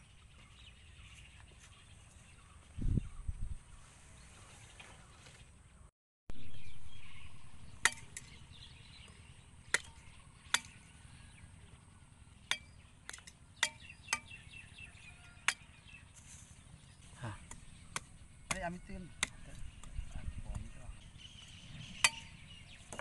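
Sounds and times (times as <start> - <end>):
blade chopping wooden stick: 9.7 - 10.9, 17.4 - 20.0, 22.0 - 23.0.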